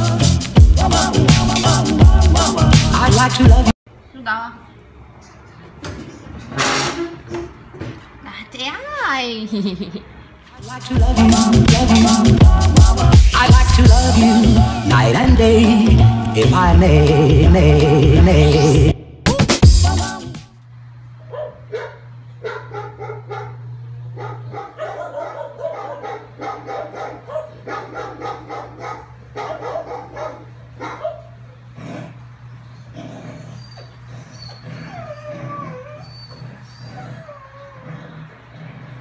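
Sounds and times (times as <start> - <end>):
dog yipping and whining: 32.7 - 38.0
dog howling: 32.8 - 38.9.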